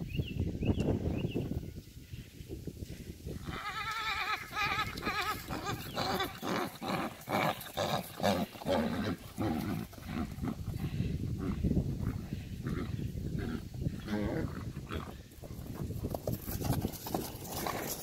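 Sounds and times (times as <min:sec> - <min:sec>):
horse whinnying: 0:03.4 - 0:10.6, 0:12.7 - 0:15.2.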